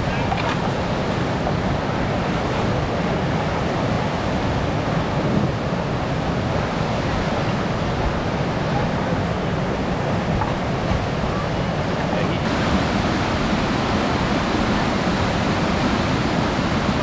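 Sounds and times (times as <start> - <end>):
whitewater rushing: 0.0 - 17.0.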